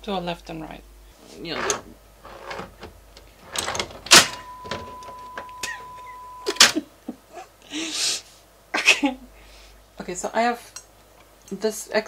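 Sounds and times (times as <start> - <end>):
steady test tone: 4.2 - 6.6.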